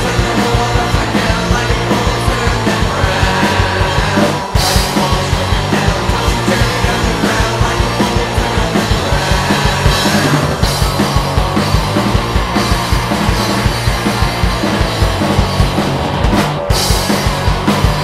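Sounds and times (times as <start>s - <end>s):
rock band playing: 0.0s - 18.0s.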